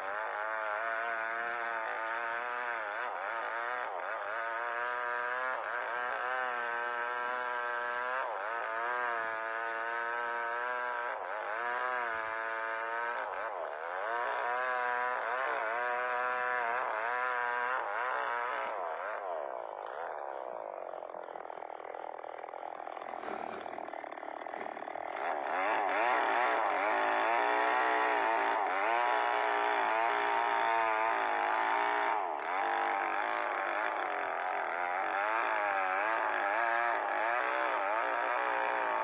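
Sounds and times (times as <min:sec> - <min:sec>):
chainsaw cutting log: 0:00.0 - 0:39.0.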